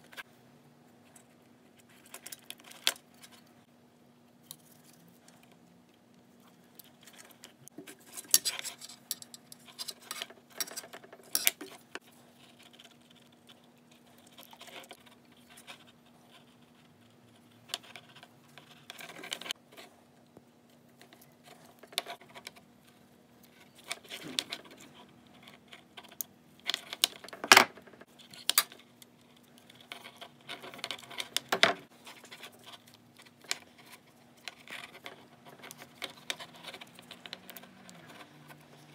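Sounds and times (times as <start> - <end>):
faint steady hum: 0.0 - 38.9
crimping pliers clicking and scraping: 8.1 - 12.0.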